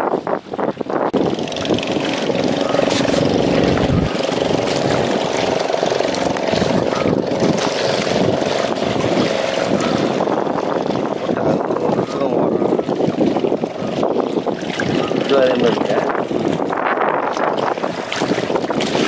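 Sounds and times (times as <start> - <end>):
water noise: 0.0 - 19.0
wind: 0.0 - 19.0
motor drone: 1.2 - 11.4.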